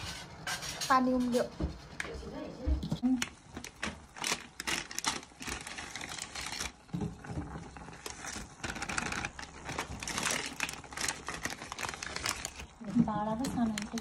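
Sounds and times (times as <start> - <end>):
plastic packets crinkling: 3.2 - 14.0.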